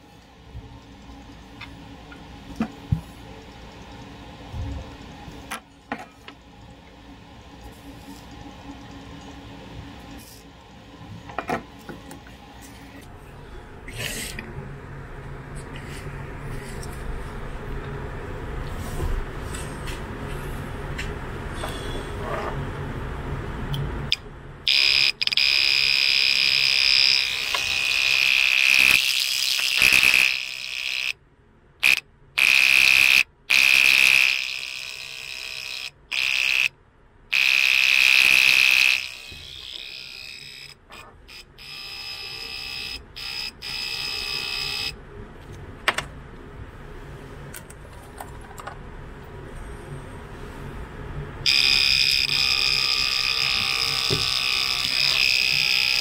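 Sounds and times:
shrill buzzer tone: 0:24.7 - 0:31.2, 0:31.8 - 0:36.7, 0:37.3 - 0:45.0, 0:51.4 - 0:56.0.

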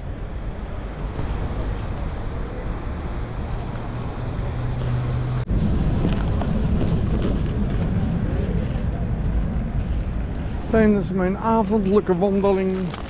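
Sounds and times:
traffic: 0:00.0 - 0:13.0
wind on microphone: 0:00.0 - 0:13.0.

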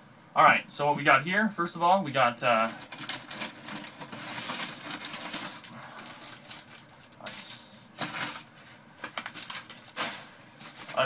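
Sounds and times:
packing paper rustling and crinkling: 0:02.4 - 0:11.0.

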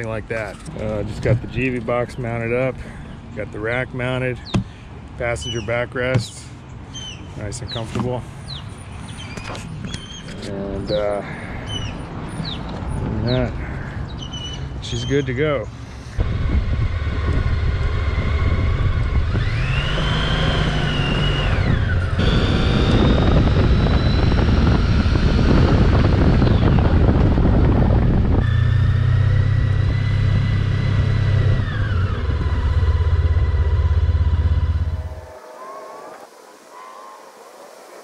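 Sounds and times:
motorcycle engine running: 0:16.2 - 0:35.4.

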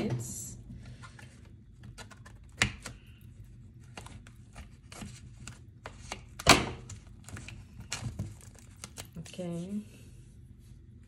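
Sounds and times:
packaging rustling and crinkling: 0:06.9 - 0:09.6.

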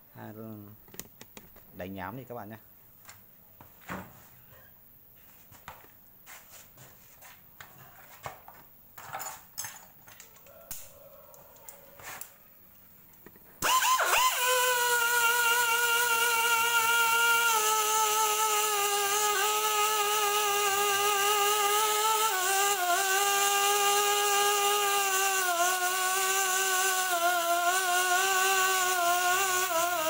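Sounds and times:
tools clicking and knocking: 0:09.0 - 0:11.8
pneumatic buffing tool whining: 0:13.6 - 0:30.0.

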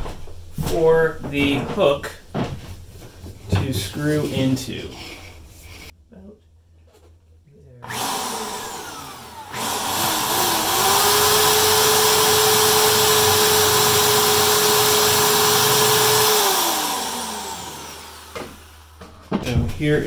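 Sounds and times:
electric drill boring into wood: 0:07.8 - 0:19.1.

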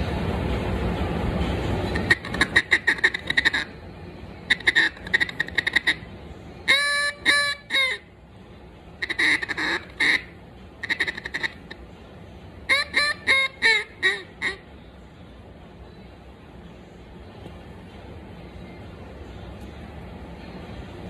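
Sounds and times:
duck call quacks: 0:01.9 - 0:03.7, 0:04.5 - 0:06.1, 0:06.7 - 0:08.1, 0:09.0 - 0:11.8, 0:12.7 - 0:14.6.

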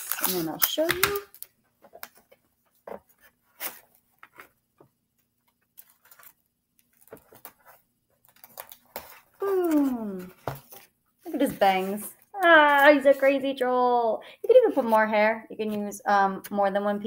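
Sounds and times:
paper and tape being handled: 0:00.0 - 0:04.6, 0:05.5 - 0:13.5.

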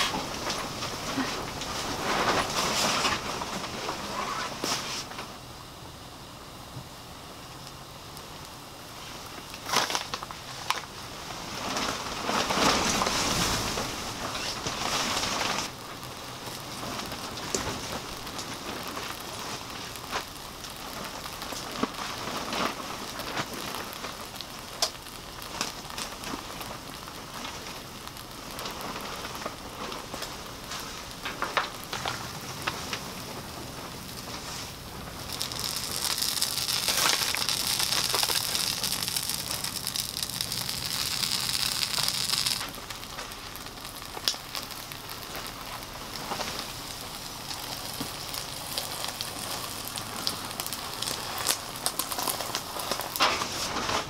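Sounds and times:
eggs sizzling in a frying pan: 0:15.6 - 0:53.2.

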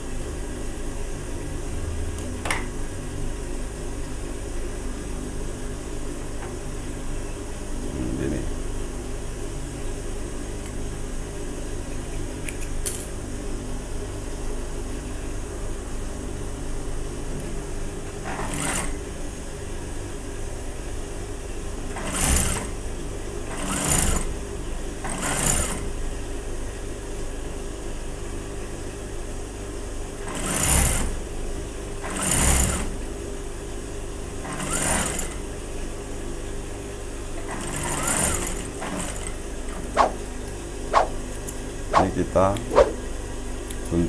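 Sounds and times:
sewing machine motor humming: 0:18.3 - 0:19.0, 0:21.9 - 0:22.7, 0:23.5 - 0:24.3, 0:25.1 - 0:25.9, 0:30.2 - 0:31.2, 0:32.0 - 0:33.0, 0:34.4 - 0:35.4, 0:37.4 - 0:40.2
sewing machine stitching: 0:18.3 - 0:19.0, 0:21.9 - 0:22.7, 0:23.5 - 0:24.3, 0:25.1 - 0:25.9, 0:30.2 - 0:31.2, 0:32.0 - 0:33.0, 0:34.4 - 0:35.4, 0:37.4 - 0:40.2.

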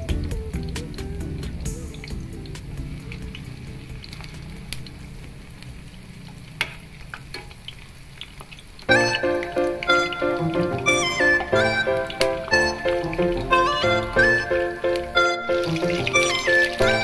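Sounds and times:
music: 0:00.0 - 0:04.9, 0:08.9 - 0:17.0
oil sizzling while deep-frying: 0:00.0 - 0:17.0.

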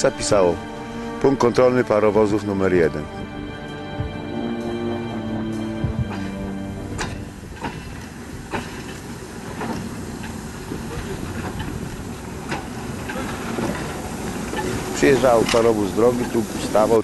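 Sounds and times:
metallic knocks and clanks: 0:05.4 - 0:09.0
steam hissing: 0:05.5 - 0:17.0.

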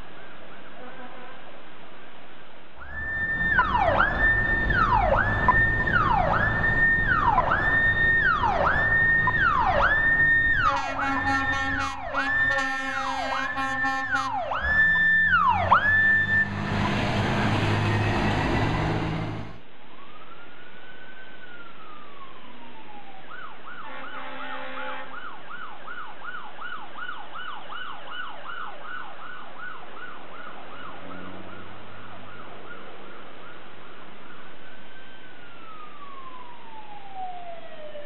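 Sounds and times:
truck noise rushing: 0:02.8 - 0:19.7
fire engine sirens: 0:02.8 - 0:38.0
horn blast: 0:10.6 - 0:14.5, 0:23.8 - 0:25.1.

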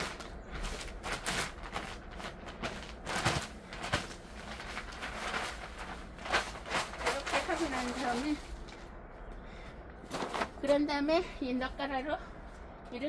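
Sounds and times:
footsteps on soft ground: 0:00.0 - 0:08.8
plastic sack rustling: 0:00.0 - 0:08.9, 0:10.1 - 0:10.7.

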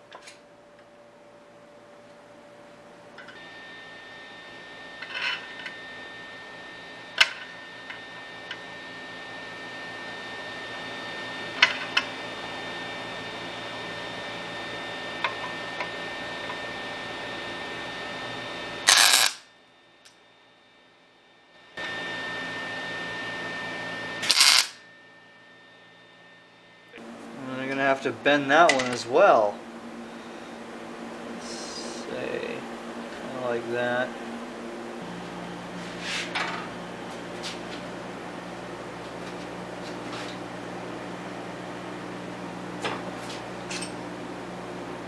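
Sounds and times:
electrical hum: 0:00.0 - 0:45.0.

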